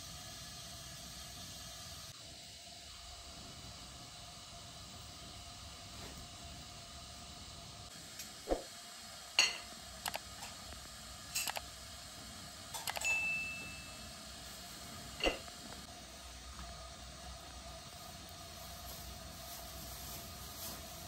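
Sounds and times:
dishes and glasses clinking: 9.4 - 9.7, 12.8 - 14.0, 15.2 - 15.5
glass ringing tone: 13.0 - 14.1.

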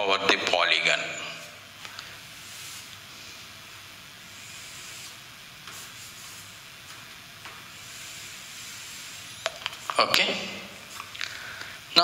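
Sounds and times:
steady hiss: 0.2 - 12.0
chalk scratching on chalkboard: 4.3 - 6.6, 7.7 - 10.0.

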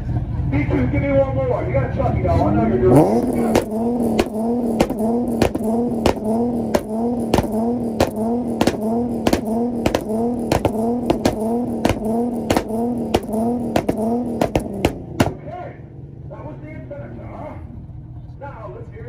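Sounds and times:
car engine revving at limiter: 2.2 - 15.7
exhaust pops and bangs: 3.0 - 15.6.

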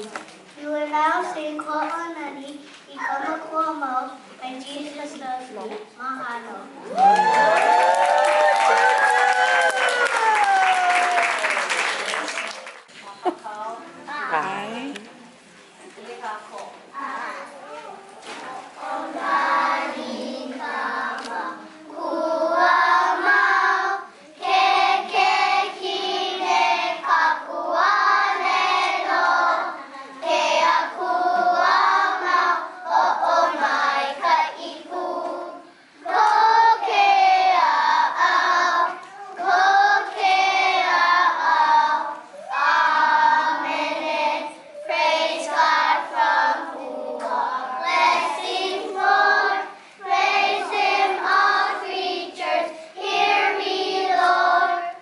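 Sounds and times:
children singing in unison: 18.6 - 55.0.

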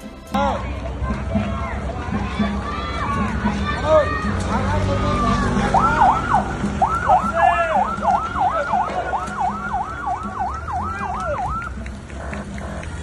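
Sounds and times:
siren yelping: 5.7 - 11.8.

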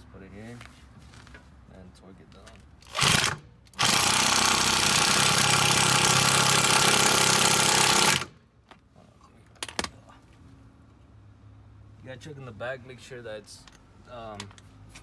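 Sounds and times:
electric impact wrench hammering: 2.8 - 8.4.

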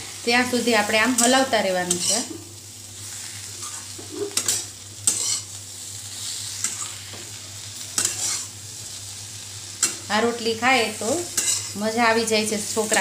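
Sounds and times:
light frying sizzle: 0.0 - 13.0
spatula scraping metal pan: 3.6 - 5.5, 8.0 - 8.5, 11.3 - 11.8.

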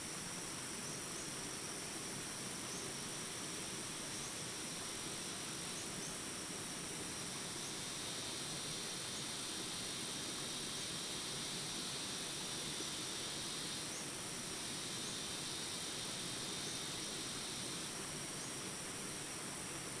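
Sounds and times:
insects buzzing: 0.0 - 20.0
outdoor ambience hiss: 0.0 - 20.0.

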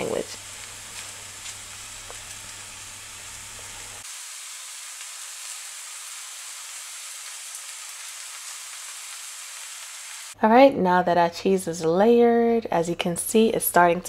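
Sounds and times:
meat sizzling on griddle: 0.0 - 10.4.

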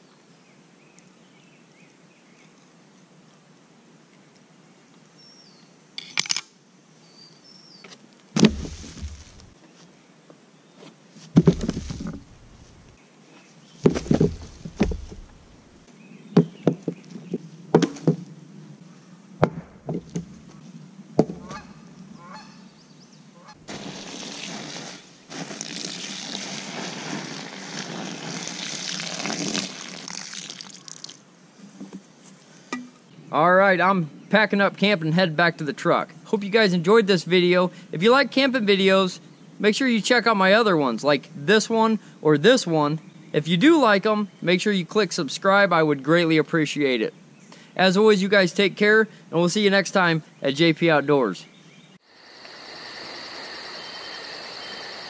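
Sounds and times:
thuds and knocks: 8.4 - 9.5, 11.3 - 12.8, 13.8 - 15.4, 17.8 - 18.2, 19.4 - 20.3
water pouring onto ashes: 23.7 - 31.2.

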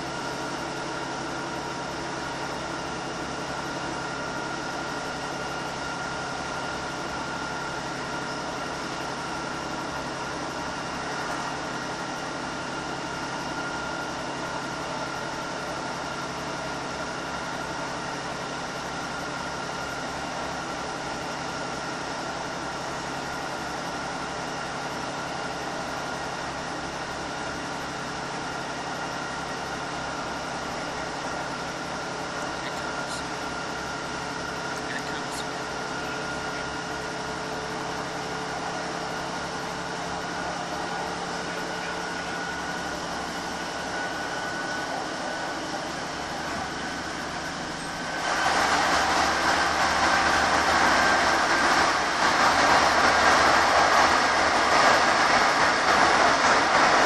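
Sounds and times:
train diesel engine running: 0.0 - 57.0.

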